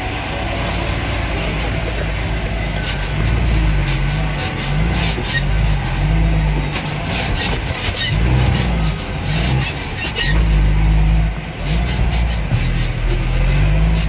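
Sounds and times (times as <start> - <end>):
truck engine under load: 0.0 - 14.0.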